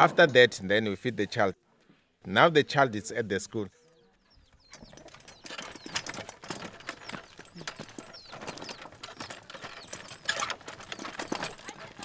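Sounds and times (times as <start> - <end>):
footsteps on dirt: 4.0 - 12.0
wheelchair rattling over rough ground: 4.1 - 12.0.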